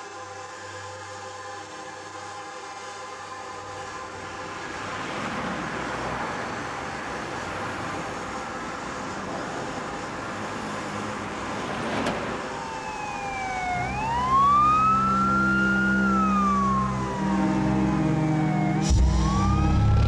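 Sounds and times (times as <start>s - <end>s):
city street traffic: 0.1s - 20.0s
emergency siren wailing: 4.7s - 20.0s.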